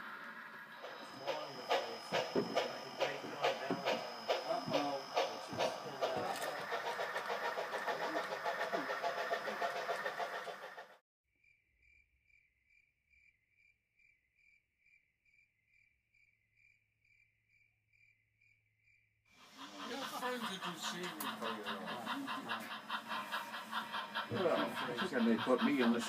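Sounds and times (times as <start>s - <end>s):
model steam locomotive chuffing: 0.0s - 11.0s, 19.4s - 26.0s.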